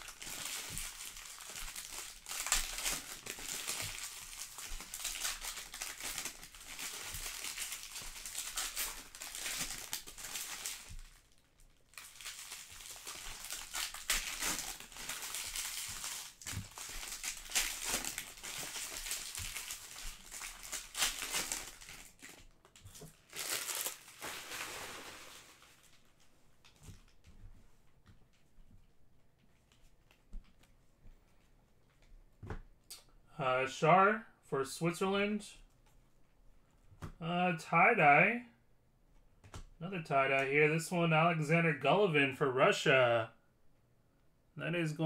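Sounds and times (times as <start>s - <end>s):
foil wrappers crinkling: 0.0s - 26.2s.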